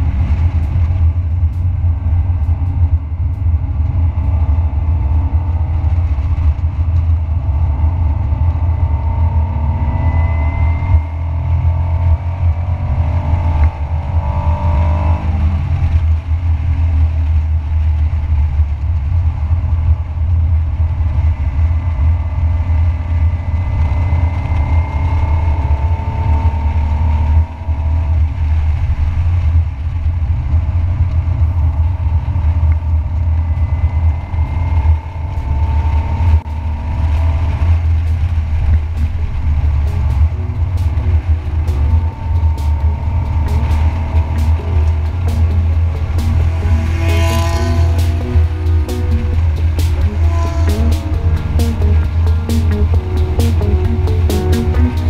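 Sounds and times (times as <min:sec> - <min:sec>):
car engine revving: 0:00.0 - 0:18.2, 0:19.5 - 0:29.9, 0:31.0 - 0:55.0
steady low rumble: 0:00.0 - 0:55.0.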